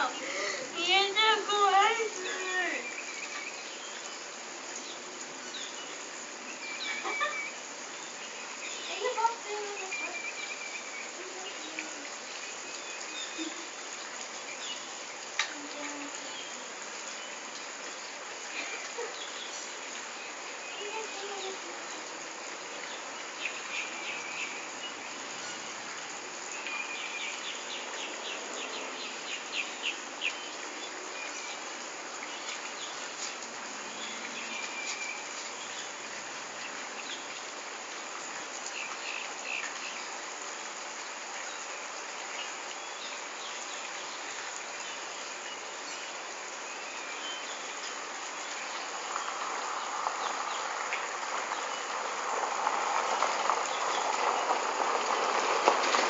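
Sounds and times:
insect chorus: 0:16.1 - 0:56.0.

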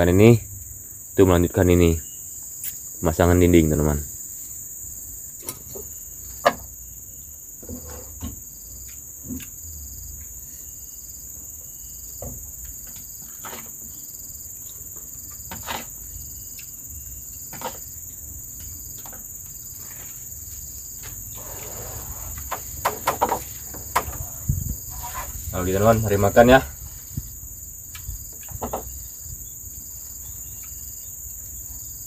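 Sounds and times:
forest insects chorus: 0:00.0 - 0:32.0
light knocks and clatter: 0:22.4 - 0:24.3, 0:28.4 - 0:28.9.

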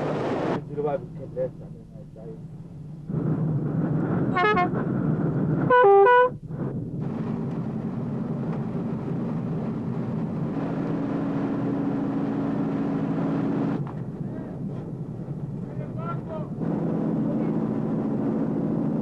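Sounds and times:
boat engine humming: 0:00.0 - 0:03.5, 0:07.9 - 0:19.0
boat horn blasts: 0:04.3 - 0:04.8, 0:05.7 - 0:06.4.

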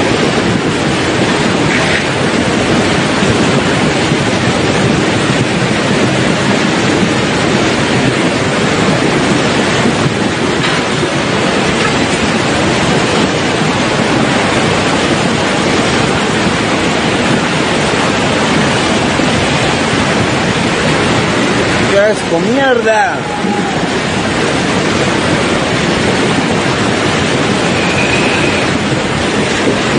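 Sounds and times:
flood water rushing down a street: 0:00.0 - 0:29.9.

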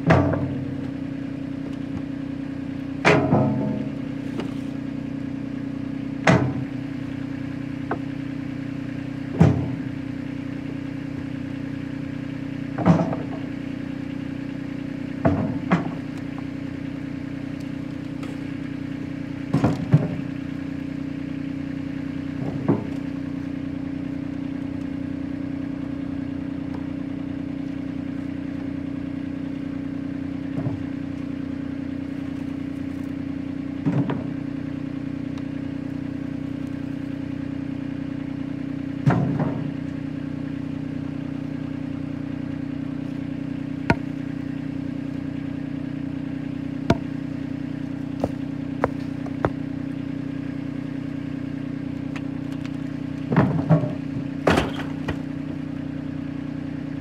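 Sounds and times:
tractor engine idling: 0:00.0 - 0:57.0.

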